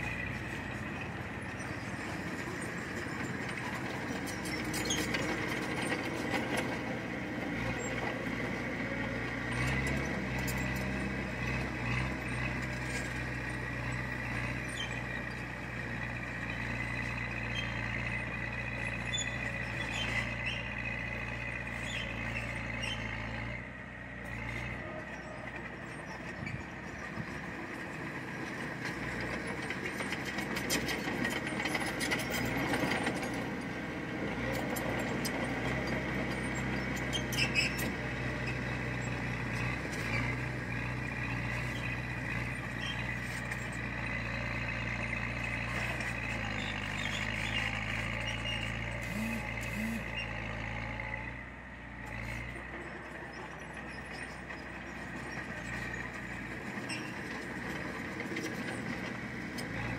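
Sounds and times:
low diesel engine note: 44.9 - 52.6.

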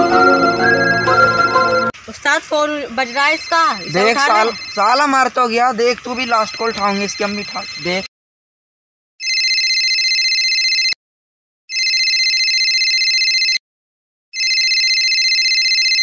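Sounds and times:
mobile phone ringtone trilling: 3.0 - 5.3, 6.2 - 8.1, 9.2 - 11.0, 11.7 - 13.6, 14.4 - 16.0.

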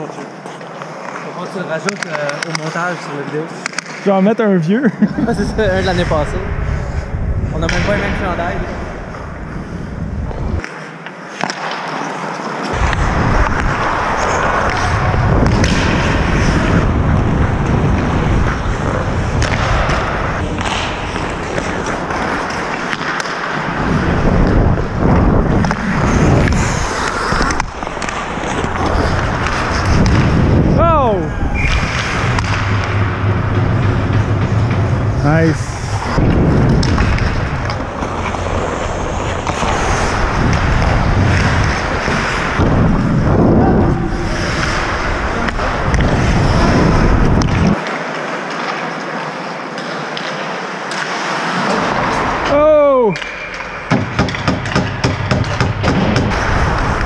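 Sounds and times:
stick and puck clacks: 0.3 - 4.1, 10.3 - 30.6, 31.6 - 43.0, 44.3 - 57.0
sharp clicks of sticks on ice: 0.5 - 2.8
wind rushing over microphone: 5.1 - 10.6, 12.7 - 22.9, 23.6 - 47.8
skate blades scraping on ice: 10.1 - 54.8, 55.4 - 57.0.

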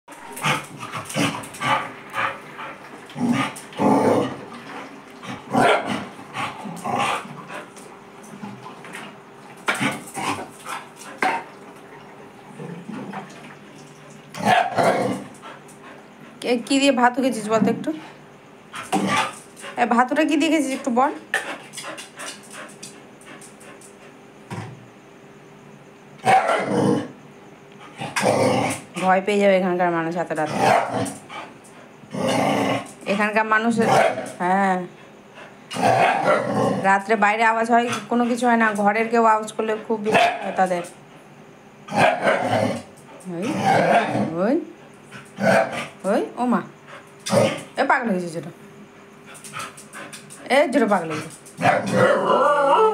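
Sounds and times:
dog barking: 5.6 - 5.9, 14.4 - 15.0, 26.2 - 26.7, 33.9 - 34.3, 35.9 - 36.4, 40.1 - 40.6, 42.0 - 42.5.

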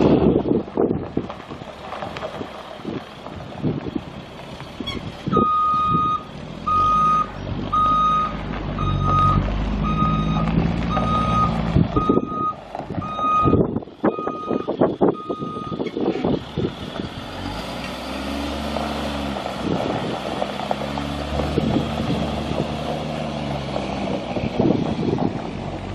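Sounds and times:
diesel bus engine running: 0.0 - 25.9
backup alarm beeping: 5.4 - 15.8.

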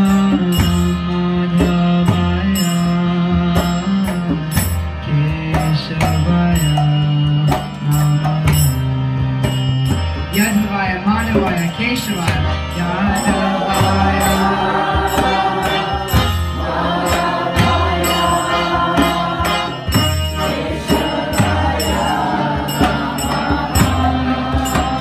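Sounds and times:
hand cymbals ringing: 11.3 - 25.0
hand drum beating: 11.3 - 25.0
group chanting: 12.9 - 25.0.

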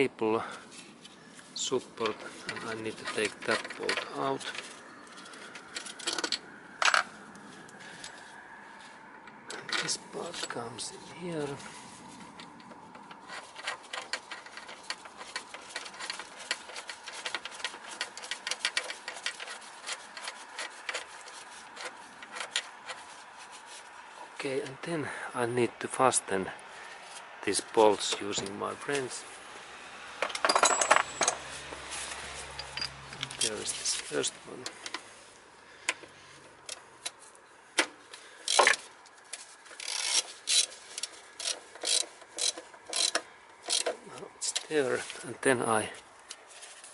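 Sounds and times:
small metal parts clicking: 2.0 - 7.1, 12.4 - 23.1, 30.2 - 31.4, 32.0 - 35.0, 38.3 - 44.7
rubbing: 13.2 - 24.4
ratchet wrench clicking: 38.4 - 38.8, 39.8 - 44.0.

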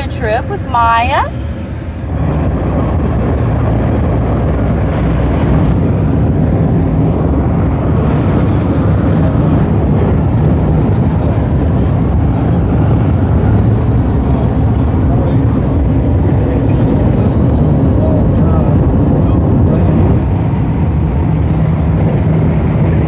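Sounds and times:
car road and engine noise: 0.0 - 23.0.

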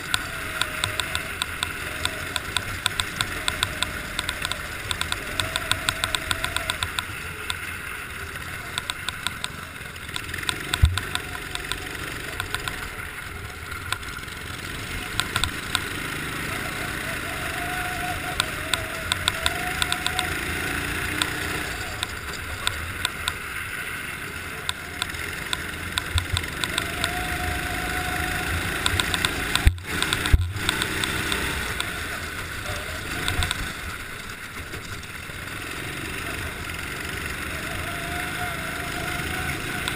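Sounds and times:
sharp clicks and knocks: 0.0 - 7.6, 8.7 - 13.0, 13.8 - 14.1, 15.1 - 16.0, 18.4 - 20.3, 21.1 - 23.4, 24.6 - 27.2, 28.7 - 32.0, 33.2 - 33.7
go-kart engine revving: 0.0 - 39.9.

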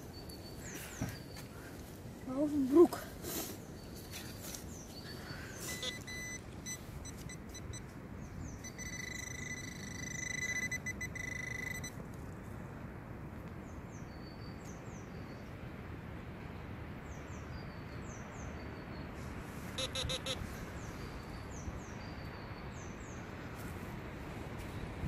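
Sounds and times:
birds chirping: 3.6 - 11.9, 19.8 - 23.2
pinpointer high alert tone: 5.7 - 7.9, 8.6 - 11.9, 19.8 - 20.4.

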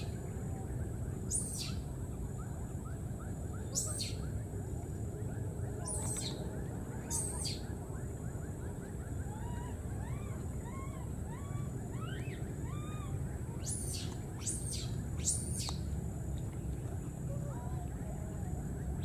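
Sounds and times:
small animal chirps: 1.3 - 1.8, 3.7 - 4.3, 5.8 - 6.4, 7.1 - 7.7, 10.0 - 15.8.

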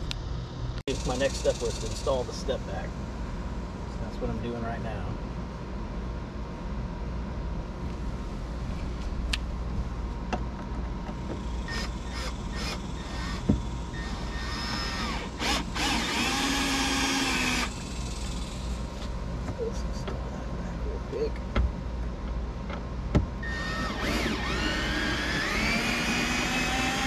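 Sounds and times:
cordless drill driving screws: 11.7 - 17.7, 23.4 - 27.0.

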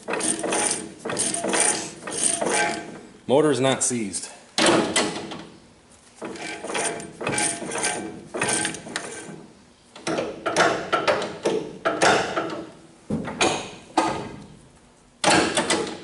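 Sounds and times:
metallic clicking and clunking: 0.0 - 3.1, 6.2 - 9.4, 10.0 - 14.4, 15.2 - 16.0.

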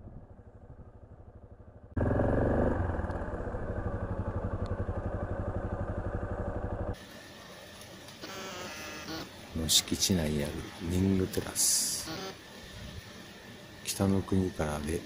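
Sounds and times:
motorcycle engine idling: 0.4 - 7.7.

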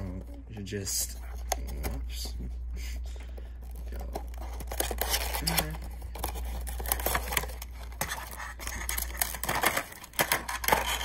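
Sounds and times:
steady low hum: 0.0 - 11.0
plastic packaging crinkling: 3.2 - 11.0.

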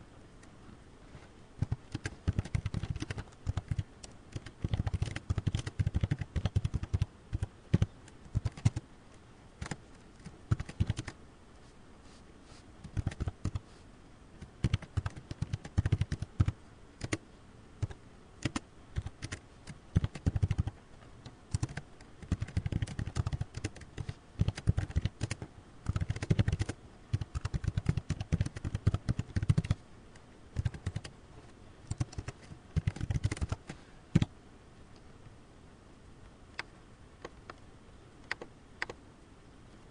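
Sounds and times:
typing on computer keyboard: 1.6 - 8.8, 9.6 - 11.2, 12.8 - 13.6, 14.4 - 17.2, 17.8 - 20.7, 21.5 - 29.8, 30.6 - 31.1, 31.9 - 34.3.

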